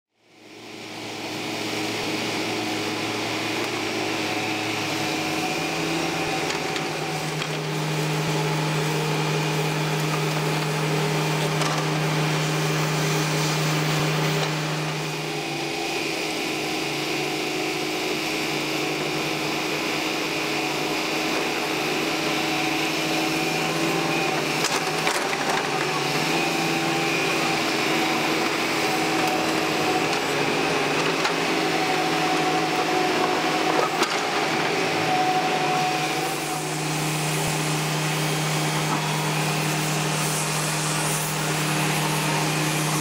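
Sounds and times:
excavator diesel engines: 0.3s - 43.0s.

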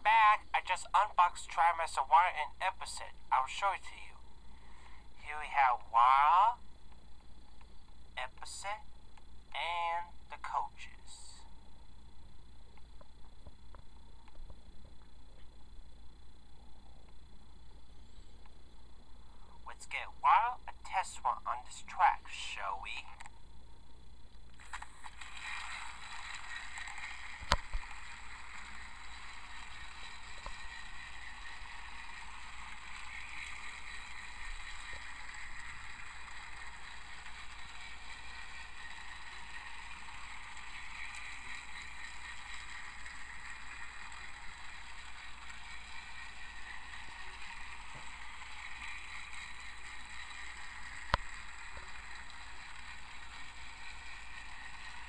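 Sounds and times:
toy train motor whirring: 0.0s - 2.2s, 24.5s - 55.0s.

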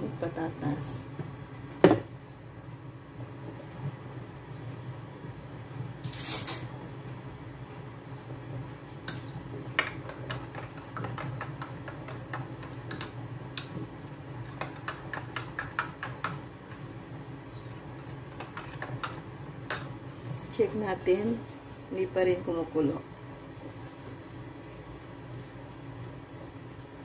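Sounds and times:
pot ticking and clicking: 9.0s - 16.9s, 18.1s - 20.0s.

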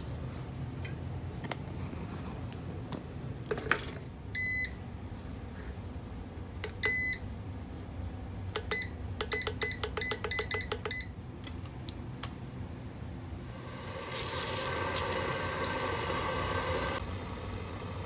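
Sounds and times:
kettle button beeps: 6.7s - 7.2s, 8.6s - 11.1s.

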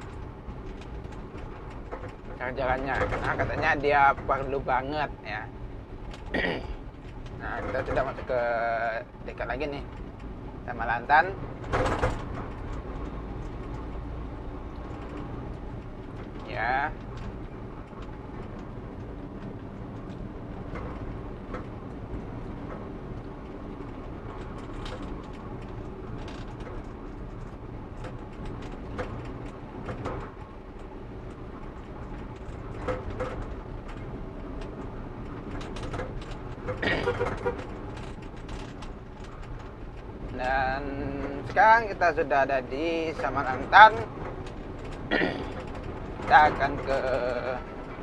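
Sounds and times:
vehicle engine and road hum: 0.0s - 48.0s
person speaking: 7.4s - 9.9s, 40.3s - 44.1s, 46.2s - 47.6s.

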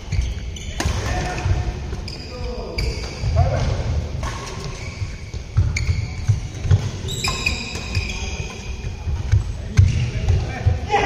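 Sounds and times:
shoes squeaking on court: 0.0s - 10.2s
racket hitting shuttlecock: 0.8s - 1.5s, 4.1s - 4.8s.

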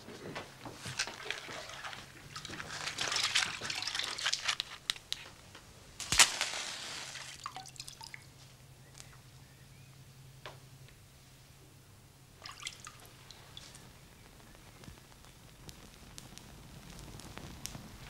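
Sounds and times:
rustling: 0.0s - 5.4s, 6.0s - 7.6s
match struck on matchbox: 6.0s - 7.4s
match flaring hiss: 6.0s - 7.5s, 14.9s - 18.0s.

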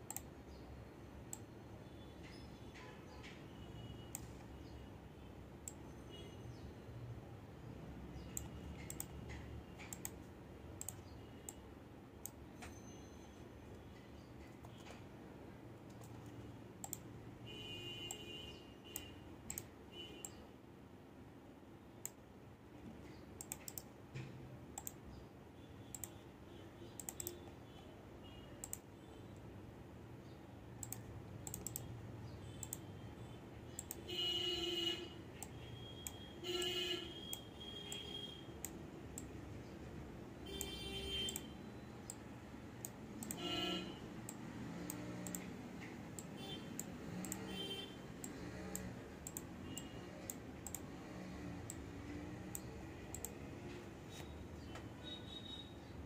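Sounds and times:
computer mouse clicks: 0.0s - 0.6s, 1.3s - 1.5s, 4.1s - 4.6s, 5.6s - 5.9s, 8.1s - 11.6s, 12.2s - 12.7s, 13.7s - 15.1s, 15.8s - 17.1s, 18.0s - 20.4s, 22.0s - 22.2s, 22.9s - 25.2s, 25.9s - 26.2s, 26.9s - 27.6s, 28.6s - 29.5s, 30.8s - 33.0s, 33.7s - 34.3s, 35.4s - 39.6s, 40.5s - 55.6s.

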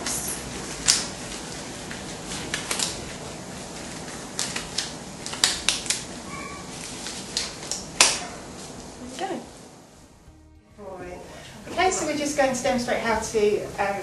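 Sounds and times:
disposable gloves crackling: 0.0s - 9.0s.

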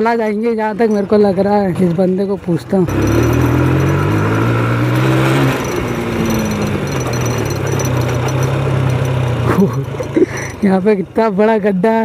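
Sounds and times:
motorcycle engine running: 2.7s - 11.8s.

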